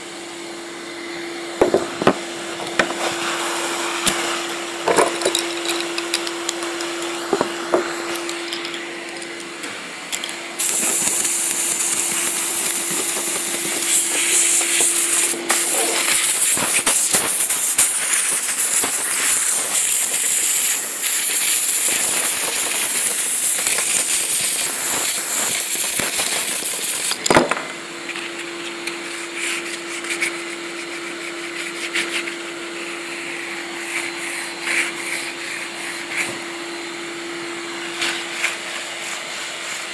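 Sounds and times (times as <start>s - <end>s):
steady hum: 0.0s - 17.5s
compressed air hissing: 10.6s - 27.2s.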